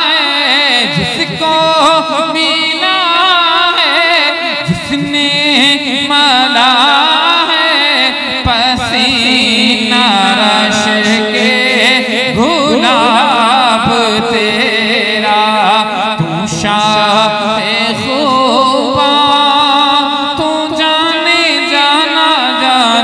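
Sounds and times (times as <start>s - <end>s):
man singing devotional song: 0.0s - 23.0s.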